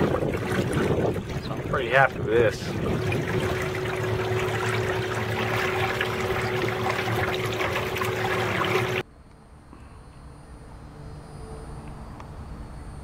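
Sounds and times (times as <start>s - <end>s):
electric trolling motor hum: 0.0s - 9.0s
water trickling along boat hull: 0.0s - 9.0s.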